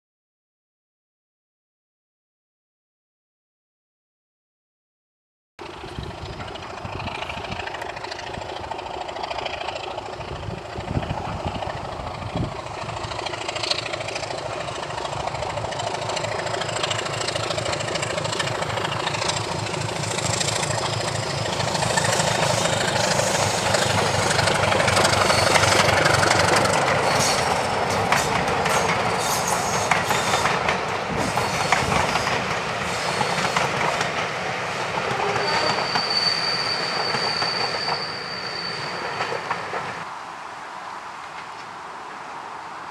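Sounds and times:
wheels clicking over rail joints: 5.6s - 36.2s
diesel locomotive engine running: 5.6s - 40.1s.

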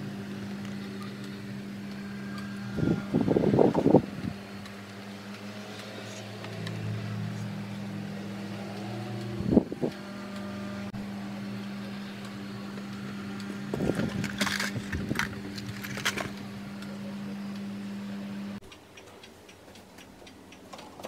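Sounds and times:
low mechanical hum: 0.0s - 21.0s
handling clatter: 13.8s - 16.4s.

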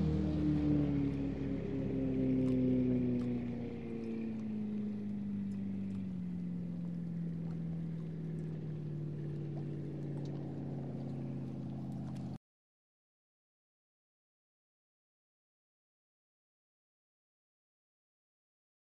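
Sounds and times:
low droning tones: 0.0s - 12.4s.

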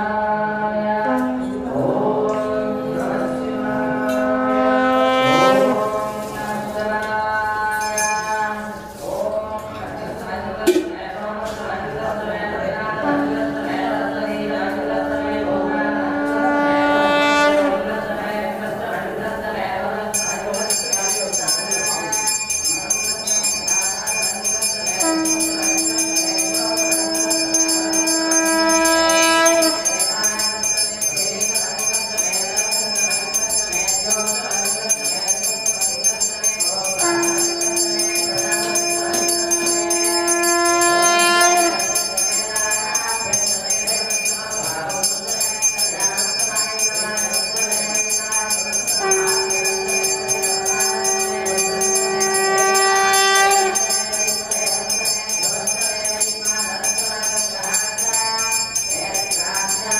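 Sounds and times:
conch shell blasts: 2.8s - 6.8s, 15.9s - 17.9s, 20.2s - 35.5s, 36.2s - 56.7s
hand bell ringing: 7.5s - 9.0s, 20.2s - 59.9s.

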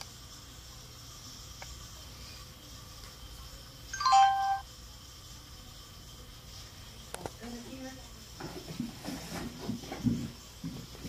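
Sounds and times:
electronic power-on jingle: 4.0s - 4.6s.

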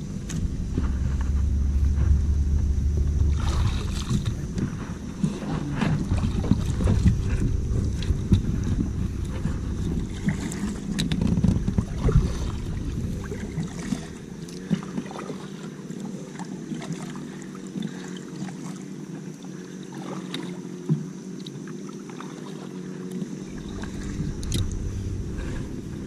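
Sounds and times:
wind rumbling on microphone: 0.0s - 15.3s, 23.3s - 26.0s
paddle splashes and knocks: 0.0s - 19.0s
water lapping against kayak hull: 0.0s - 26.0s.

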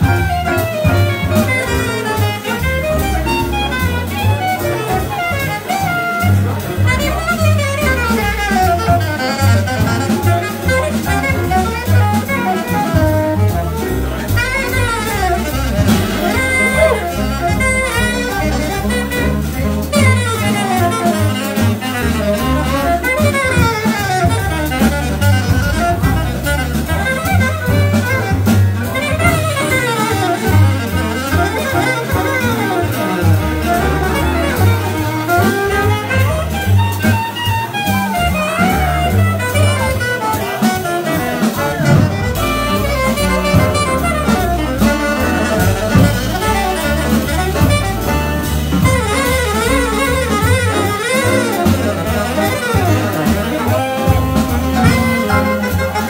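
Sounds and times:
double bass: 0.0s - 56.0s
drums: 0.0s - 56.0s
saxophones playing fast runs: 7.7s - 56.0s.

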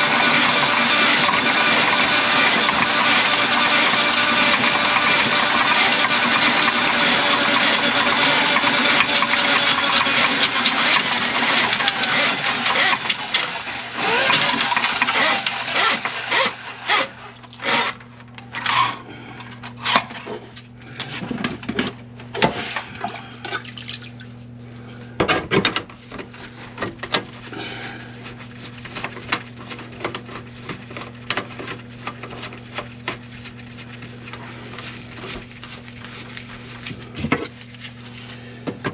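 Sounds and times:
drain-cleaning machine running: 0.0s - 18.8s.

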